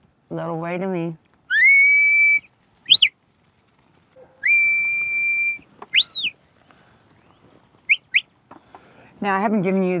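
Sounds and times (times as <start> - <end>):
shepherd's whistle: 1.5 - 3.1, 4.4 - 6.4, 7.9 - 8.3.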